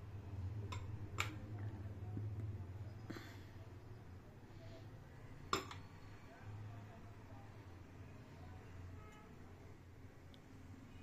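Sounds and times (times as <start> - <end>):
low steady hum: 0.0 - 11.0
spoon clinking against dishes: 5.5 - 6.0.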